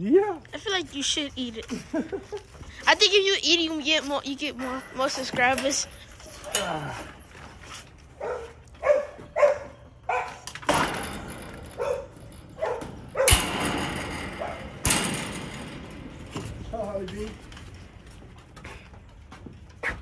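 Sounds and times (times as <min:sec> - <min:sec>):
dog barking: 0:08.2 - 0:10.4, 0:11.8 - 0:13.4.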